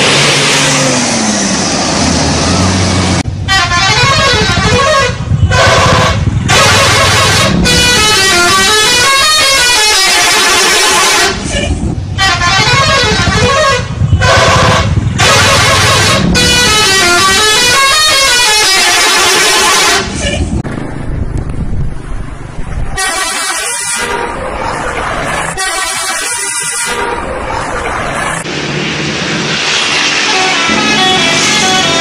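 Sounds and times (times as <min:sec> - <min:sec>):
musical air horn melody: 0:03.5 - 0:20.4, 0:23.0 - 0:24.3, 0:25.5 - 0:27.2, 0:30.2 - 0:32.0.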